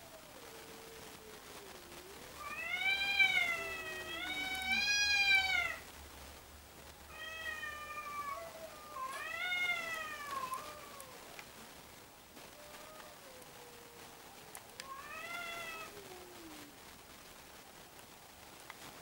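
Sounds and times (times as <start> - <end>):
cats yowling: 0.0 - 5.9, 7.1 - 11.4, 12.4 - 16.7.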